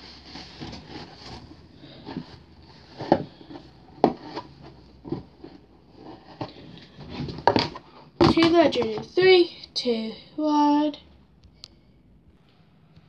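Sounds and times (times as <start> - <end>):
handling rubbing and rustling: 0.0 - 9.4.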